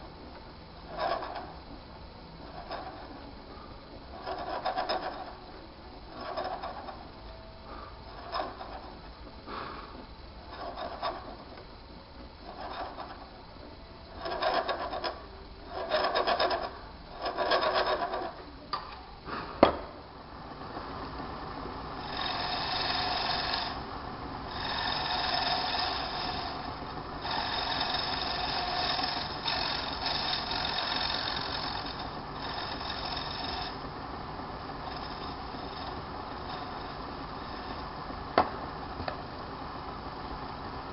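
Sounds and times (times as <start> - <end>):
turning tool scraping bone: 0.8 - 1.6, 2.4 - 3.2, 4.1 - 5.5, 6.1 - 7.4, 8.0 - 9.1, 10.4 - 11.6, 12.4 - 13.4, 14.1 - 18.4, 22.0 - 33.9, 34.6 - 38.1.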